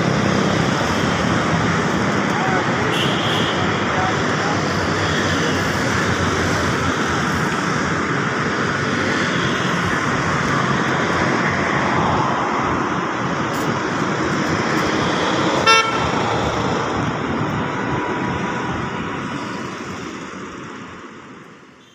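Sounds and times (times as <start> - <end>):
street traffic rushing: 0.0 - 21.9
vehicle horn toot: 2.9 - 3.6, 15.6 - 16.1.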